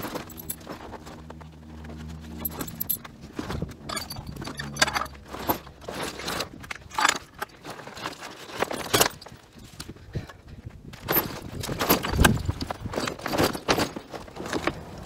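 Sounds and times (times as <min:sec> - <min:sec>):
metal rods and cables jangling: 0:00.0 - 0:01.2, 0:01.9 - 0:09.8, 0:11.0 - 0:15.0
fabric rustling and scraping: 0:00.0 - 0:10.0.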